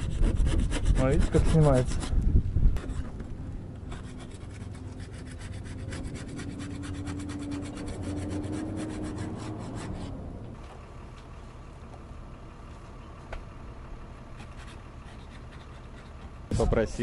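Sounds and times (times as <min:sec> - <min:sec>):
hand scraper rasping paint: 0:00.0 - 0:02.1, 0:04.0 - 0:10.1.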